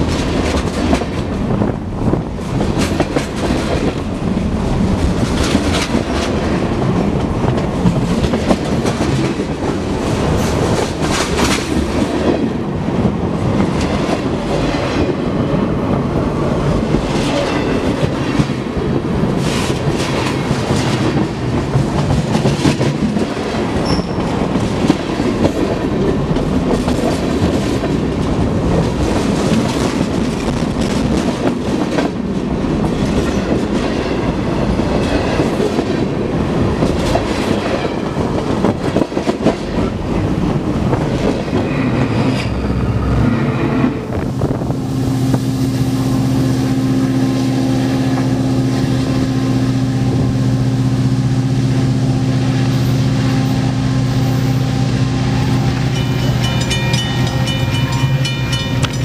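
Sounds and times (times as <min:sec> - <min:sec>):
train wheels rumbling on rail: 0:00.0 - 0:59.0
wheels clicking over rail joints: 0:55.7 - 0:59.0.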